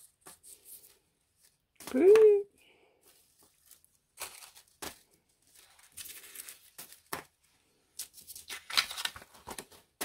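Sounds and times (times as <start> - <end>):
plastic stencils crackling: 3.0 - 10.0.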